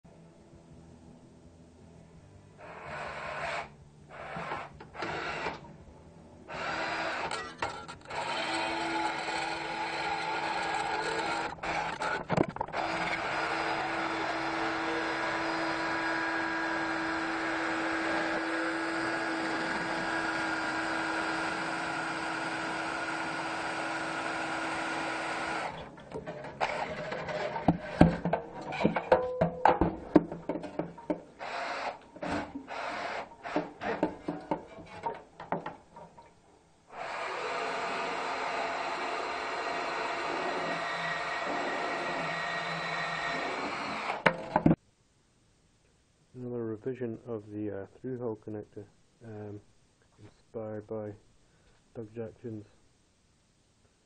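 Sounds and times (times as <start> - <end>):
cordless drill whining: 2.6 - 5.6, 6.5 - 25.9, 26.5 - 29.0, 31.4 - 35.0, 36.9 - 44.7.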